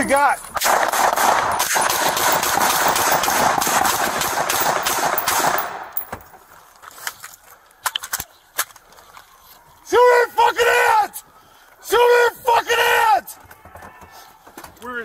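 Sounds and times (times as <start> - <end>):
rapid gunshots echoing: 0.6 - 6.0.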